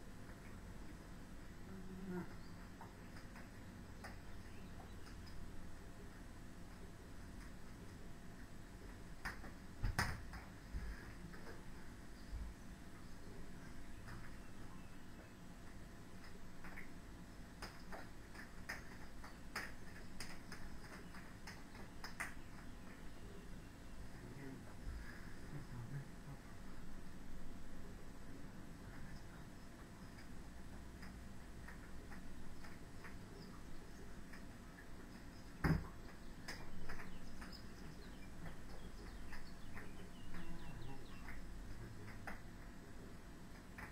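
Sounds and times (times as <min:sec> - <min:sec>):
juggling balls slapping hands: 0:09.2 - 0:10.6, 0:17.6 - 0:22.7, 0:35.6 - 0:37.6, 0:42.0 - 0:42.5.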